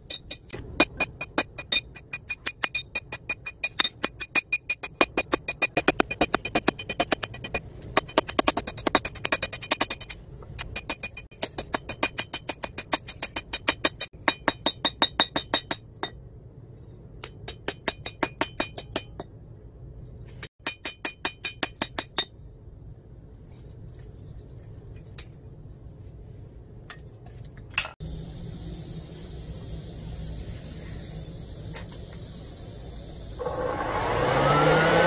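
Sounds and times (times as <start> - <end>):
hammer striking steel on anvil: 8.8 - 16.2, 20.6 - 22.3.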